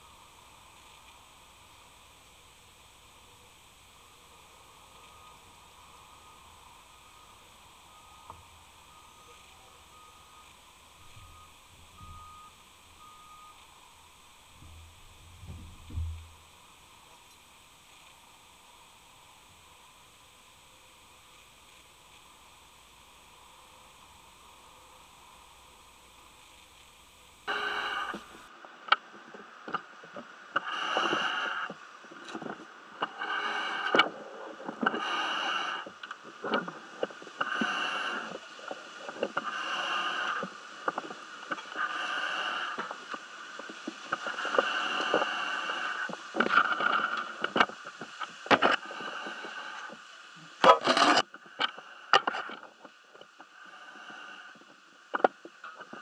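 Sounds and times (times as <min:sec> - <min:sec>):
diver breathing through regulator: 0:27.5 - 0:28.5, 0:30.6 - 0:31.8, 0:33.0 - 0:47.7, 0:48.5 - 0:50.0.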